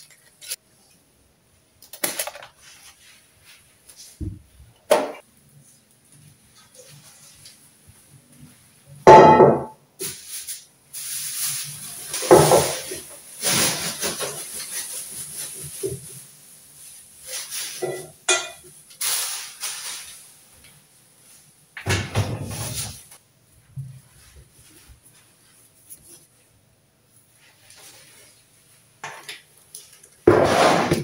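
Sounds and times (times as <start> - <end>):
plastic bag rustling: 10.0 - 18.2, 18.9 - 20.7, 22.4 - 23.2.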